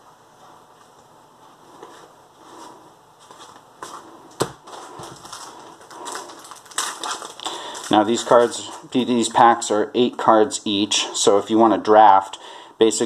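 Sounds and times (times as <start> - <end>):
plastic wrapper crinkling: 4.6 - 9.7.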